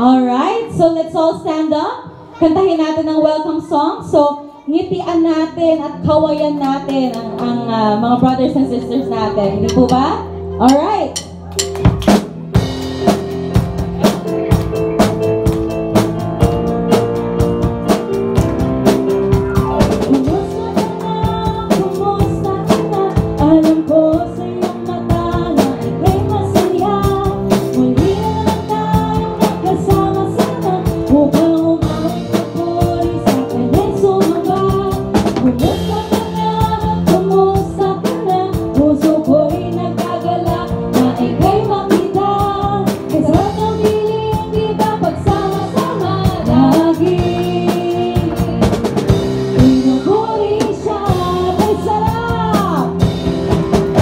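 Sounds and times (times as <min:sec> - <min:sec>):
drum kit: 0:06.4 - 0:54.0
electric bass: 0:07.7 - 0:54.0
voices singing: 0:44.8 - 0:48.7.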